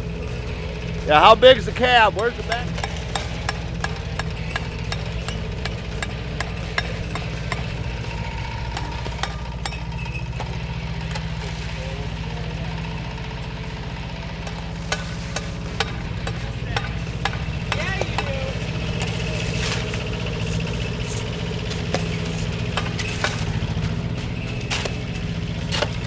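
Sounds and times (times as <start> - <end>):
excavator engine running: 0.0 - 26.0
bucket scraping packed snow: 19.1 - 26.0.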